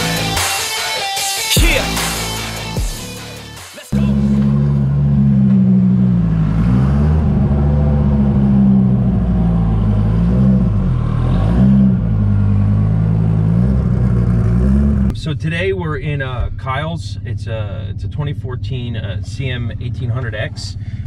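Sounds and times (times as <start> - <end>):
car engine running loudly: 4.0 - 15.7, 16.4 - 21.0.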